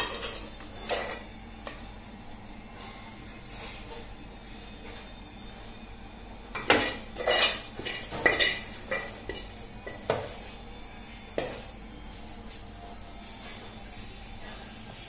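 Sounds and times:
metal spatula scraping steel pan: 0:07.2 - 0:09.0.

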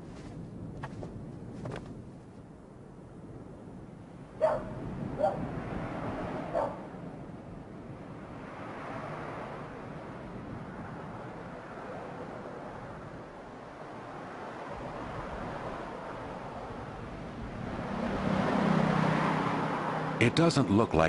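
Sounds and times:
dog barking: 0:04.4 - 0:05.5, 0:06.5 - 0:06.9.

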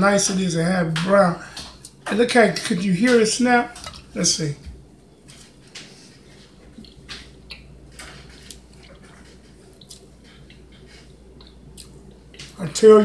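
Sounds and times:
low room hum: 0:00.0 - 0:13.0
person chewing crunchy cookie: 0:05.2 - 0:12.6.

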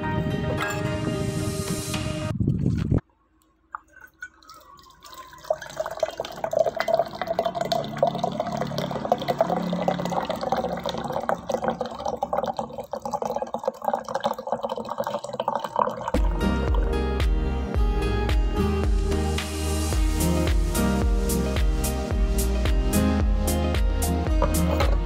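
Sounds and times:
water pouring into a glass: 0:03.8 - 0:16.9.

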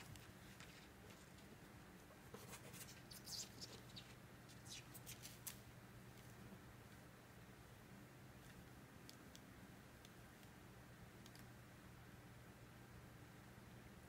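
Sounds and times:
faint low hum: 0:00.0 - 0:14.0
kitten claws scratching a towel: 0:02.4 - 0:05.6.

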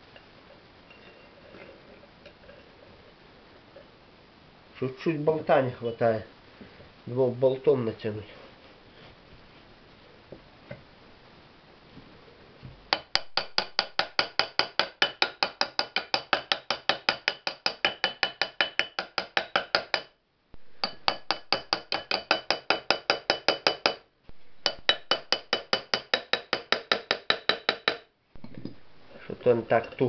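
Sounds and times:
hammer tapping on metal cover: 0:24.7 - 0:28.8.

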